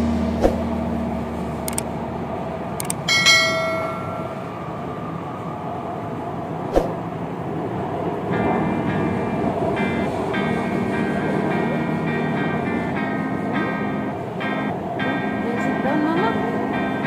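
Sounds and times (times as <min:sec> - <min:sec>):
train carriage rumble and hiss: 0:00.0 - 0:17.0
sharp clicks: 0:01.6 - 0:01.9, 0:02.8 - 0:04.1
short bright chime: 0:03.1 - 0:04.6.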